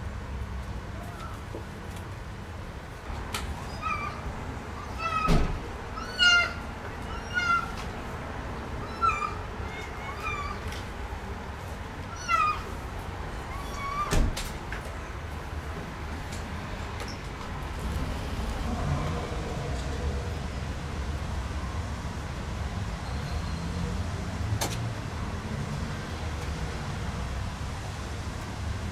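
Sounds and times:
kitten meowing: 0:03.6 - 0:05.4, 0:06.0 - 0:07.8, 0:08.8 - 0:10.7, 0:12.1 - 0:12.7, 0:13.5 - 0:14.2.

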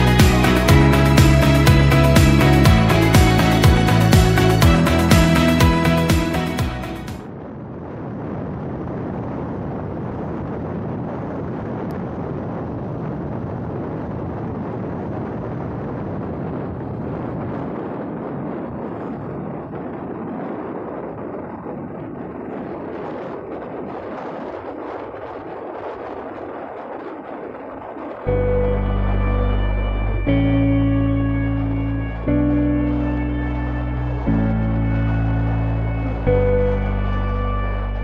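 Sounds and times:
guitar music: 0:00.0 - 0:07.2, 0:28.3 - 0:38.0
wind buffeting microphone: 0:00.0 - 0:38.0.

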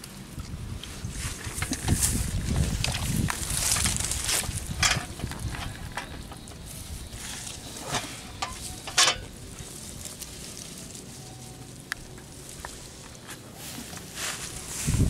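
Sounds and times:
hands rustling through weeds and mud: 0:00.4 - 0:15.0
brushing sweeps: 0:06.6 - 0:15.0.

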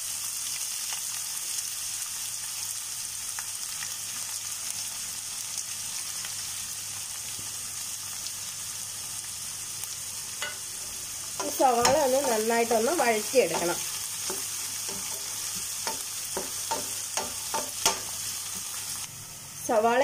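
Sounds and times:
onions sizzling in oil: 0:00.0 - 0:20.0.

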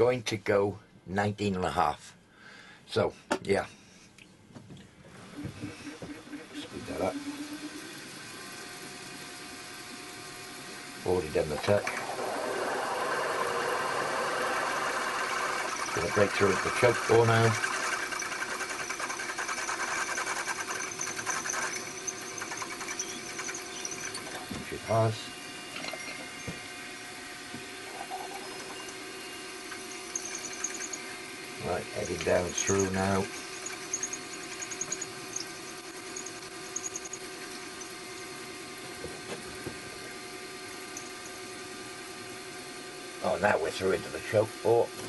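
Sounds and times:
milling machine hum: 0:05.4 - 0:44.6
drill cutting metal hiss: 0:11.6 - 0:26.6, 0:28.4 - 0:38.2.

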